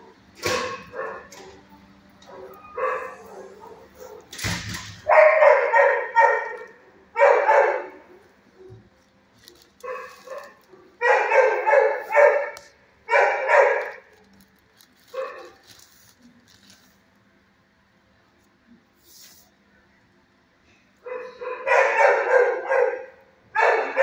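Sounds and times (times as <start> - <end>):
dog barking: 0.4 - 1.6, 2.2 - 4.4, 5.0 - 8.8, 9.8 - 14.2, 15.1 - 15.6, 21.0 - 24.0.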